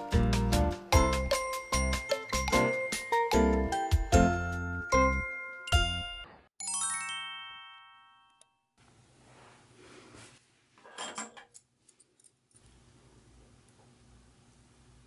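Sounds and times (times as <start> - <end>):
rising chime jingle: 1.0 - 8.4.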